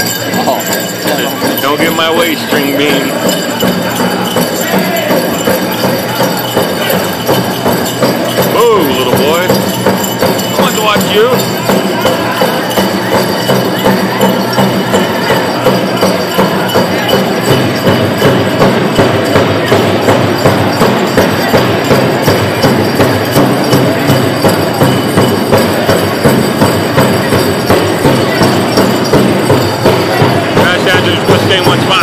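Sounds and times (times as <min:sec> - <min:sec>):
steady drumbeat: 0:00.0 - 0:32.0.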